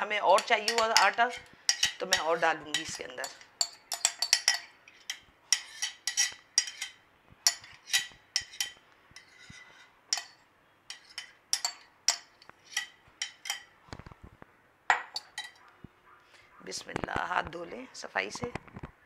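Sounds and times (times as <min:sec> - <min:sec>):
utensil scraping a steel bowl: 0:00.0 - 0:13.7.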